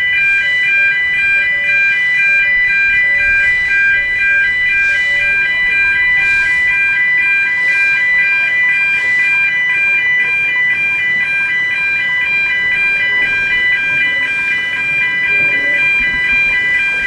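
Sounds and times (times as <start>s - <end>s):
two-tone crossing alarm: 0.0s - 17.0s.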